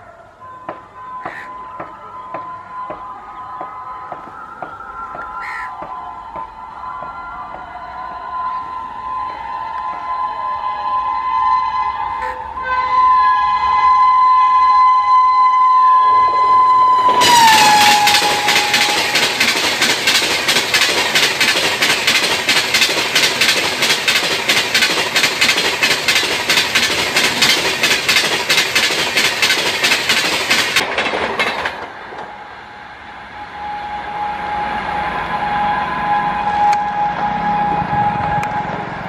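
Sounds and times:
shrill locomotive horn: 6.6 - 28.2, 32.2 - 39.0
train wheels clattering: 17.0 - 32.4.

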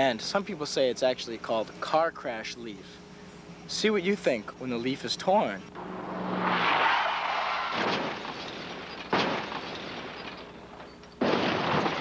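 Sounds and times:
car crash impacts: 6.2 - 12.0.

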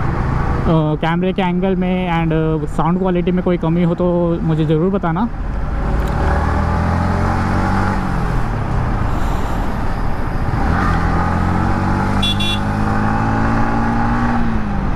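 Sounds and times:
motorcycle engine: 10.4 - 14.9
vehicle horn toot: 12.2 - 12.8.

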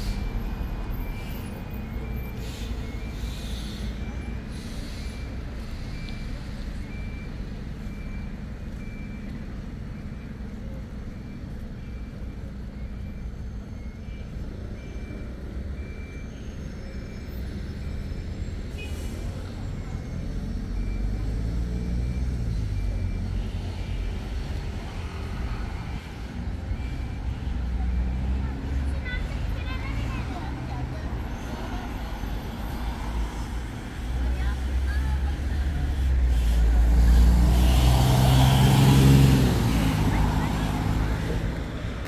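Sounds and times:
traffic engines rumbling: 0.0 - 42.0
reversing alarm beeping: 0.1 - 9.4, 11.0 - 28.8.

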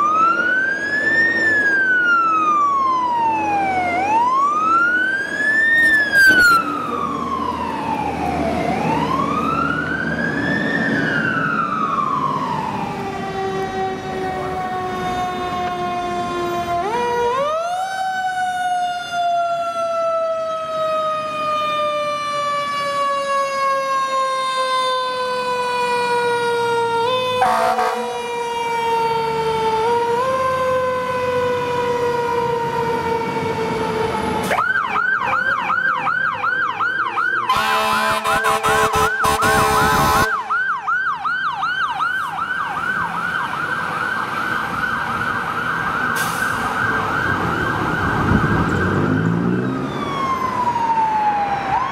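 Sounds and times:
electronic siren yelping: 0.0 - 15.6, 25.8 - 31.1, 34.4 - 51.9
mechanical siren winding down: 0.0 - 37.8, 38.6 - 51.9
loud horn blast: 27.4 - 28.3, 37.5 - 40.5.

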